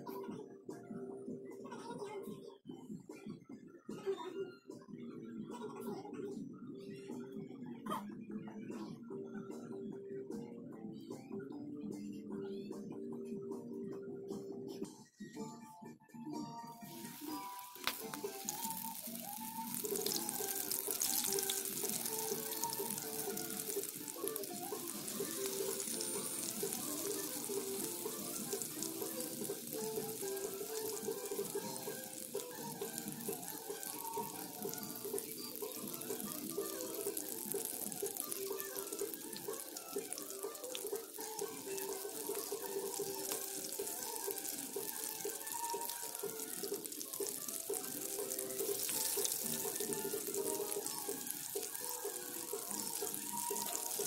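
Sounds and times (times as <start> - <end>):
background music: 0.0 - 54.0
shrimp sizzling in hot oil: 16.8 - 54.0.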